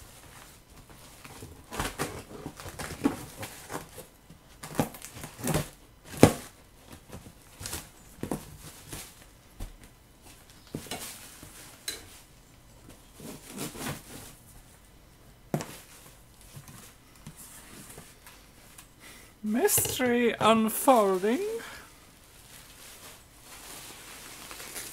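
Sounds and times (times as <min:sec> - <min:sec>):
plastic bag handled: 0:19.5 - 0:24.9.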